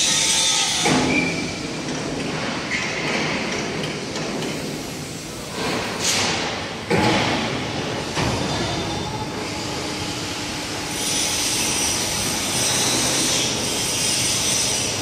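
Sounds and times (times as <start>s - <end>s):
mechanical workshop noise: 0.0s - 15.0s
hissing clanks of metal: 2.2s - 7.6s.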